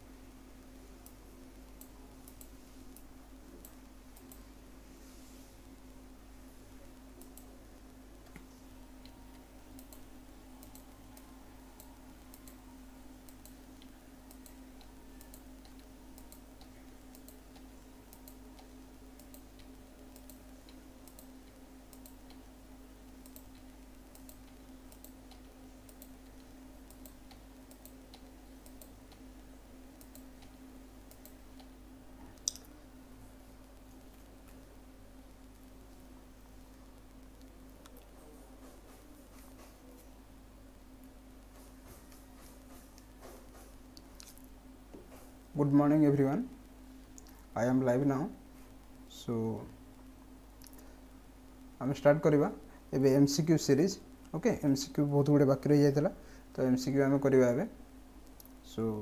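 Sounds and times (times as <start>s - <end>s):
low electrical hum: 0.0s - 59.0s
soft clicks: 1.8s - 4.4s, 6.8s - 7.5s, 8.2s - 12.6s, 13.2s - 22.4s, 23.2s - 29.3s, 30.0s - 31.8s, 32.4s - 32.8s.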